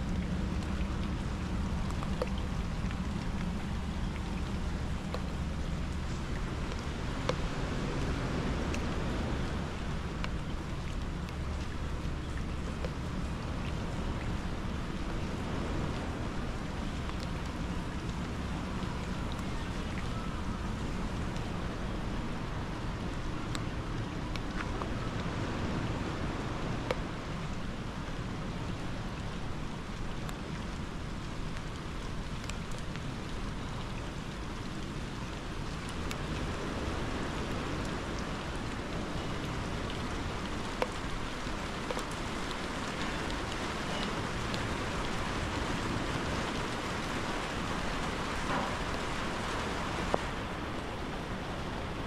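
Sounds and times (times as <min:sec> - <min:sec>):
constant low rumble: 0:00.0 - 0:52.0
rain pattering on surfaces: 0:00.0 - 0:52.0.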